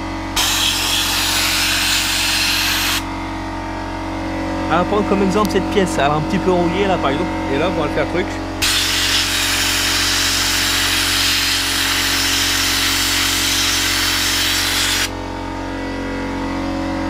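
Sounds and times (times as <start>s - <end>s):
sandblasting gun hissing: 0.4s - 3.1s, 8.6s - 15.2s.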